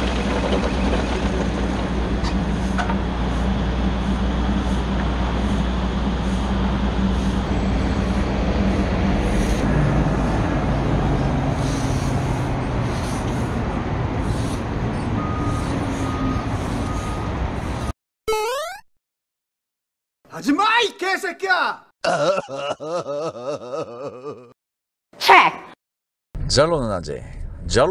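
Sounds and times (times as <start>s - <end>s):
excavator engine droning: 0.0s - 17.9s
street traffic: 0.0s - 18.0s.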